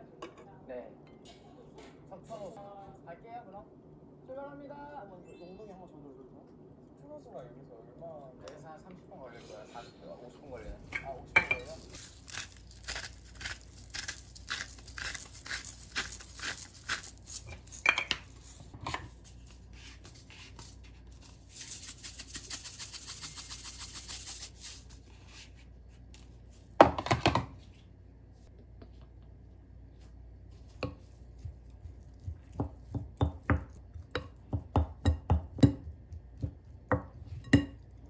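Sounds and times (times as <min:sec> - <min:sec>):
wooden spoon knocking glass bowl: 0:32.5 - 0:37.8.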